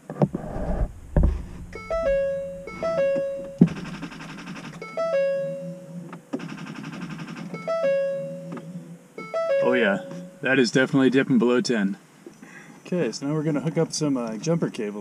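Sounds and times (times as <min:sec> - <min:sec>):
stepped electronic tones: 0:00.4 - 0:05.7
electronic buzz: 0:00.4 - 0:06.0.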